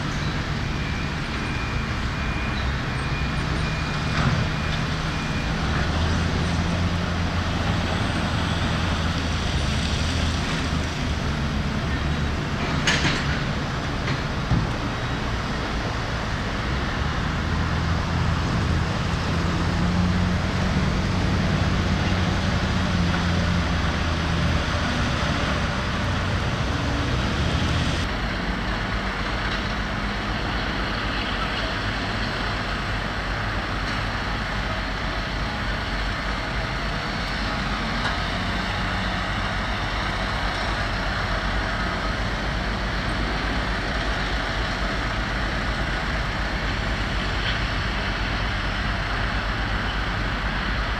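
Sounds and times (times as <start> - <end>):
heavy diesel engine running: 0.0 - 50.9.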